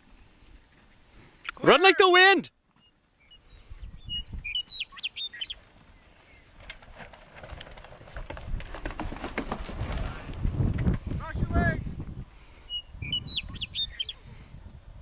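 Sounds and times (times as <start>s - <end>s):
small birds chirping: 2.7s - 6.7s, 12.0s - 14.8s
wind rumbling on microphone: 3.4s - 4.7s, 7.4s - 15.0s.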